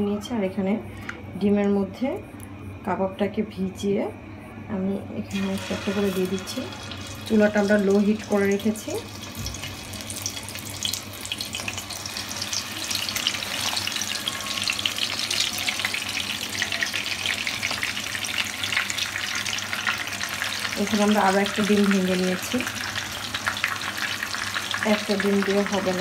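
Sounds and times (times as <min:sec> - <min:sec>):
meat sizzling in frying pan: 0:05.4 - 0:26.0.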